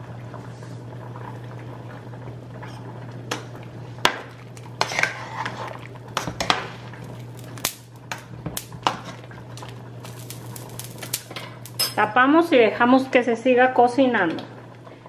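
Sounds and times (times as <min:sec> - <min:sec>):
broth bubbling: 0:08.6 - 0:11.8
metal spoon clinking against pot: 0:11.8 - 0:12.0.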